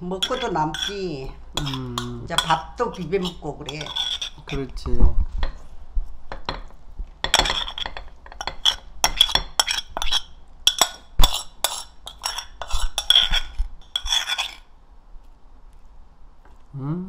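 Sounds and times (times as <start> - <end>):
metal spoon clinking on ceramic bowls: 0.1 - 4.7, 6.3 - 14.7.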